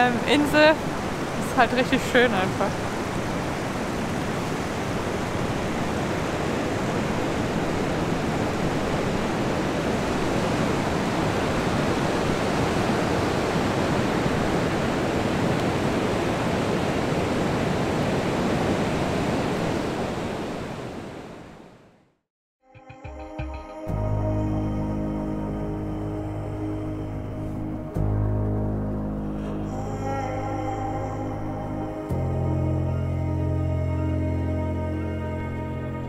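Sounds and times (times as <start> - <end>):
ocean surf breaking on beach: 0.0 - 21.8.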